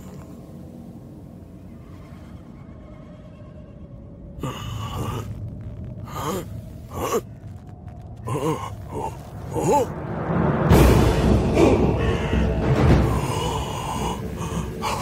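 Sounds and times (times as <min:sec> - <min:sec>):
old man gasping and grunting: 0:11.6 - 0:15.0.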